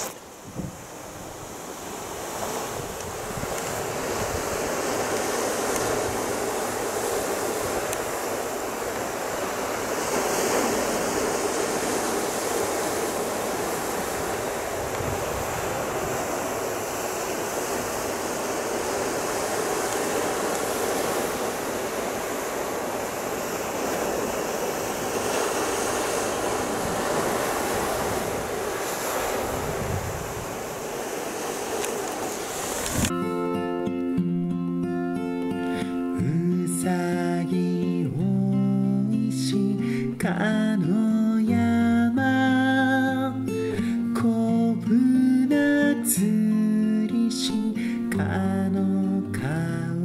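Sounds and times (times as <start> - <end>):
wind on microphone: 0.0 - 33.1
surf washing over rocky shore: 0.0 - 33.9, 34.9 - 50.0.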